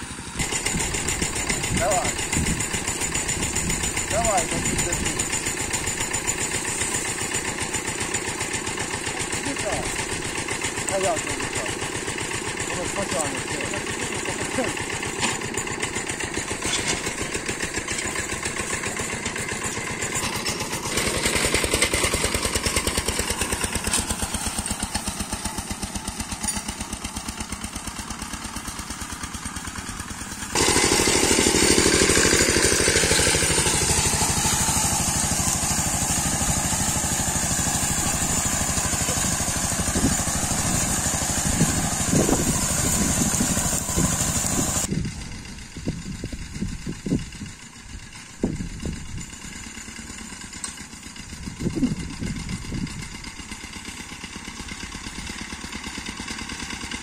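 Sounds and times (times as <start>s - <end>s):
metal harrows dragging over soil: 0.0s - 45.8s, 46.8s - 57.0s
diesel engine running: 0.0s - 57.0s
clatter: 0.3s - 11.2s, 11.9s - 39.4s, 44.8s - 57.0s.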